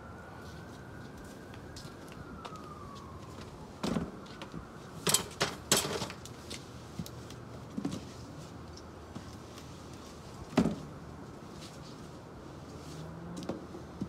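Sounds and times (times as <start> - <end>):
tools knocking and clattering: 5.0 - 6.2.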